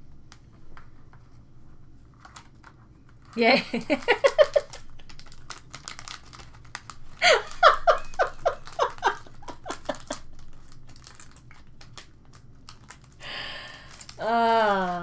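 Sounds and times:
woman laughing: 0:03.4 - 0:04.8, 0:07.2 - 0:10.3.

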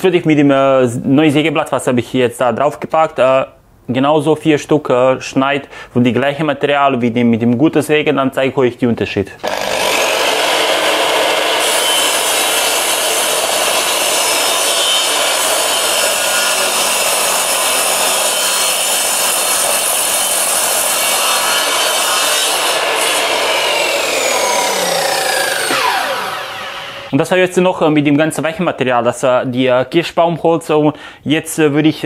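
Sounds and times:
miter saw cutting wood: 0:09.4 - 0:27.1
saw blade spinning down: 0:09.4 - 0:27.1.

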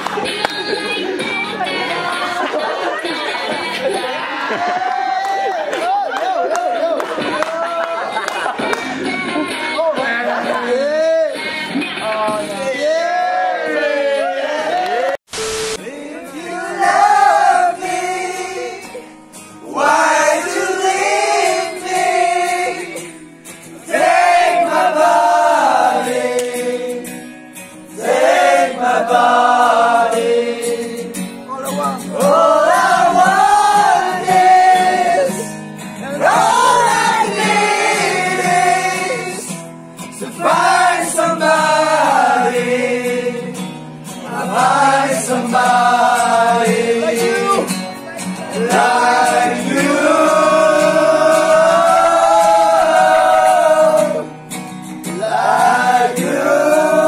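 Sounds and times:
men singing in chorus: 0:15.8 - 0:19.0, 0:19.6 - 0:23.2, 0:23.8 - 0:27.3, 0:27.9 - 0:31.3, 0:32.1 - 0:35.6, 0:36.2 - 0:39.6, 0:40.2 - 0:43.6, 0:44.2 - 0:47.6, 0:48.5 - 0:54.3, 0:55.1 - 0:57.0.

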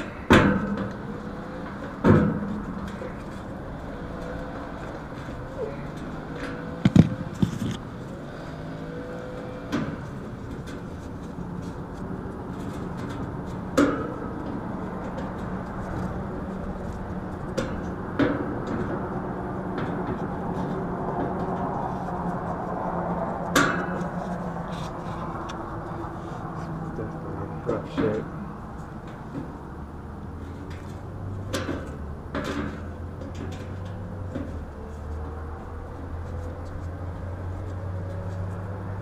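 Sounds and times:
metallic knocks and clanks: 0:00.0 - 0:07.9, 0:23.5 - 0:24.3, 0:30.6 - 0:35.4.

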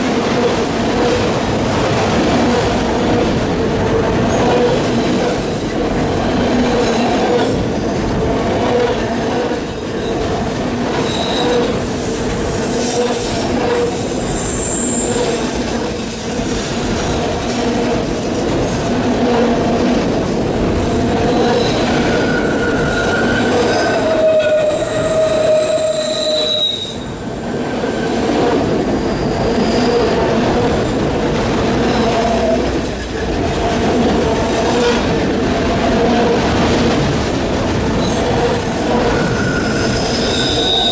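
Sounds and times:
freight train wheels rumbling: 0:00.0 - 0:40.9
high-pitched wheel squeal: 0:08.8 - 0:11.8, 0:12.5 - 0:16.3, 0:21.3 - 0:28.2, 0:38.0 - 0:40.9.

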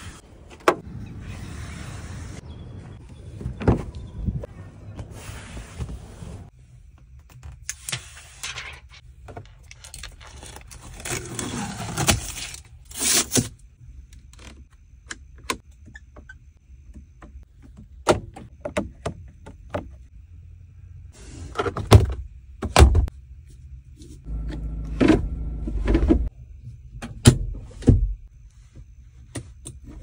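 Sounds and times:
low hum: 0:23.2 - 0:26.8.

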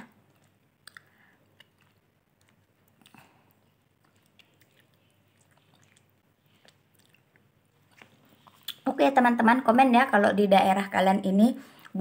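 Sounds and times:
person chewing: 0:00.1 - 0:08.8
wet mouth clicks: 0:00.3 - 0:08.8.

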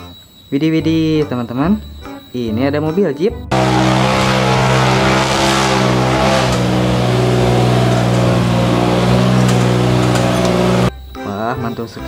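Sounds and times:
engine running at high revs: 0:03.5 - 0:10.9.

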